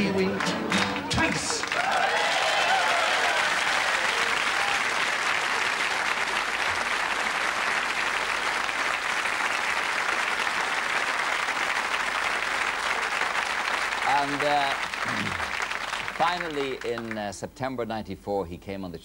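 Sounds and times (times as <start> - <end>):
audience applauding: 0.0 - 17.4.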